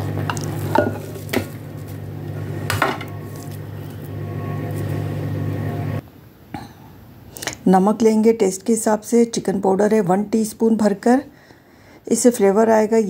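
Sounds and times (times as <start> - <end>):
steady low hum: 0.0 - 6.8
bowls knocking and clinking: 0.1 - 1.6.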